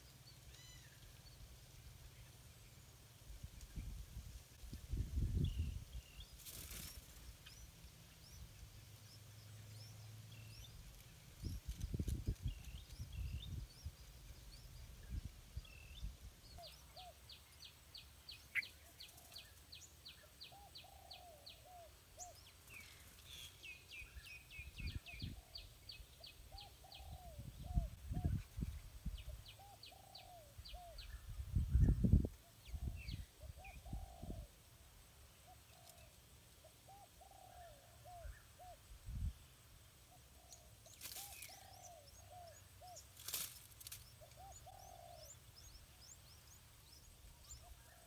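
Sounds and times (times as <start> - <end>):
birds chirping: 4.8 - 34.5, 40.0 - 48.0.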